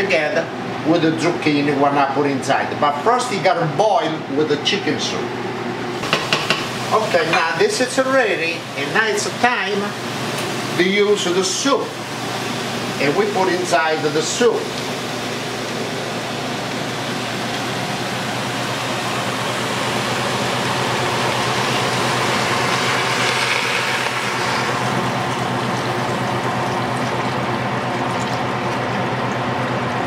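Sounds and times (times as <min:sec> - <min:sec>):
broth pouring and splashing into pot: 0:14.5 - 0:29.3.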